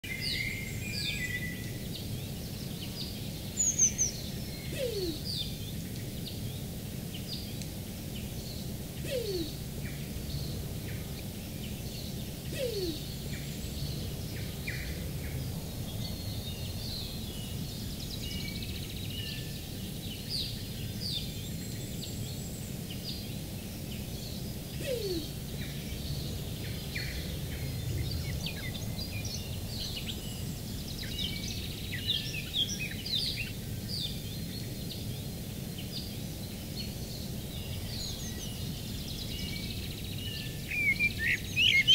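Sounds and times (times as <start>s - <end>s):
low background noise: 0.0s - 41.9s
small birds chirping: 0.0s - 41.9s
pigeon low cooing: 4.7s - 5.3s, 9.0s - 9.7s, 12.5s - 13.2s, 24.8s - 25.8s.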